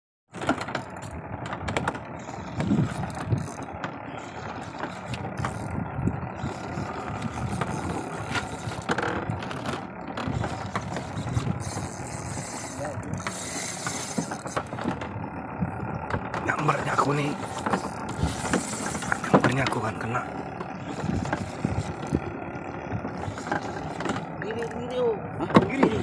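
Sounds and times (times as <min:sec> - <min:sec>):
steady low rumble: 0:00.7 - 0:26.0
fishing reel ratcheting: 0:02.2 - 0:14.8, 0:16.9 - 0:20.2, 0:20.8 - 0:25.0.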